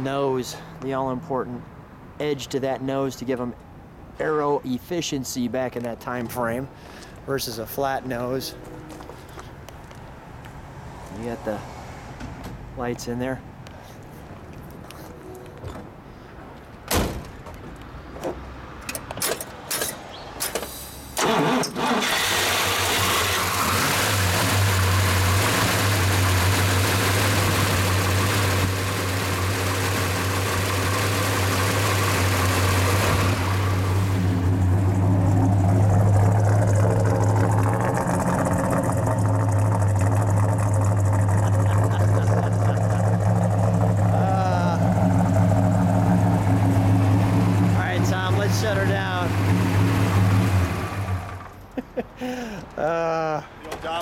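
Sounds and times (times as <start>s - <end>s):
starter clicks and clunks: 17.2s - 23.6s
car engine starting and idling: 20.8s - 52.6s.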